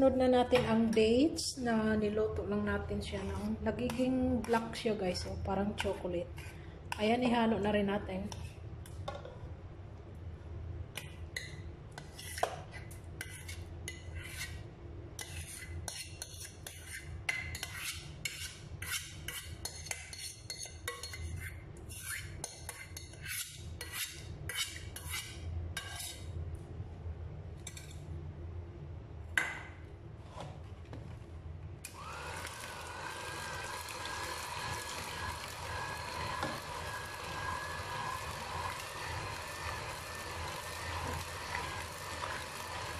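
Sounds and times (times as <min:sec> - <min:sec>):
metal spoon scraping saucepan: 0:03.0 - 0:04.6, 0:15.2 - 0:26.2, 0:34.0 - 0:42.9
electric hand mixer running: 0:31.9 - 0:42.9.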